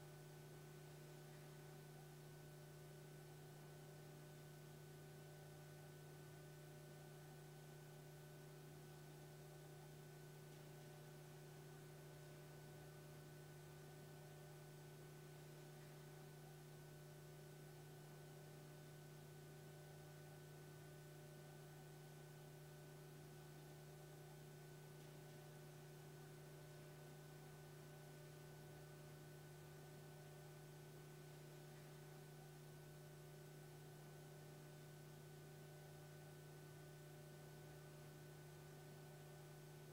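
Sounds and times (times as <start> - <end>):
faint steady hum with hiss: 0.0 - 39.9.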